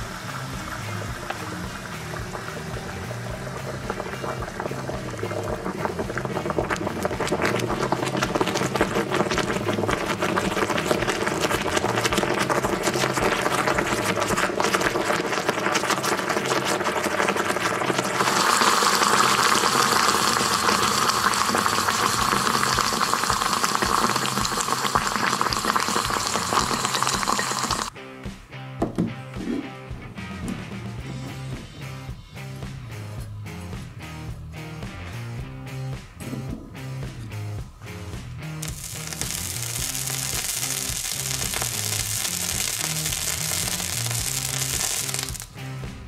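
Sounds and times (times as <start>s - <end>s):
hot metal ball sizzling: 0.0s - 27.9s, 37.8s - 45.8s.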